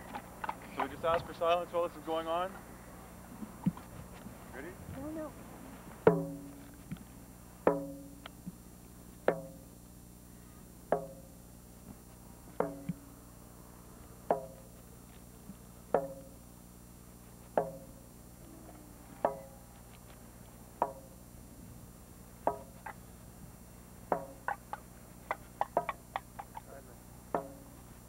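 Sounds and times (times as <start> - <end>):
drum beating slowly: 5.9 - 7.0, 7.6 - 9.8, 12.5 - 13.1, 15.4 - 16.6, 17.4 - 19.8, 20.7 - 27.9.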